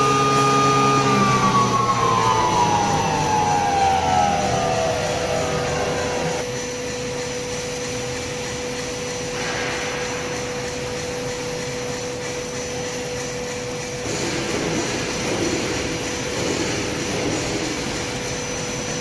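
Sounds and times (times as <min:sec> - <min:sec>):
grinding mill humming: 0:00.0 - 0:08.9.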